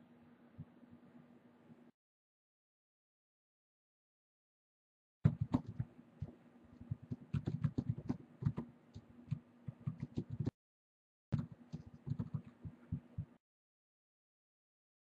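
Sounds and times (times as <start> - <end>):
keyboard typing: 5.3 - 10.5, 11.4 - 13.1.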